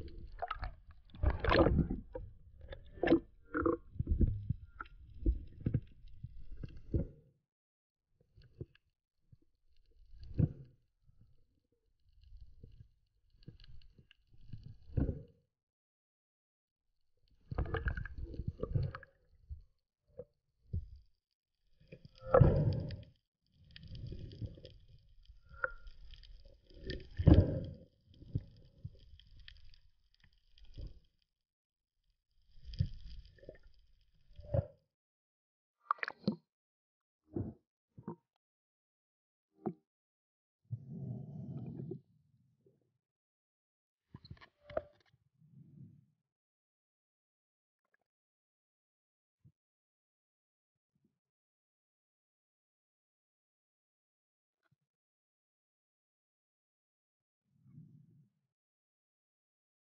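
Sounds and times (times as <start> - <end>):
muffled underwater swishes and knocks: 0.0 - 7.2, 22.2 - 23.0, 37.3 - 38.3, 40.7 - 42.1
water sloshing underwater: 0.0 - 7.2, 9.7 - 11.3, 12.0 - 15.3, 17.2 - 31.2, 32.4 - 34.8, 35.9 - 36.5, 37.3 - 38.4, 40.7 - 42.1.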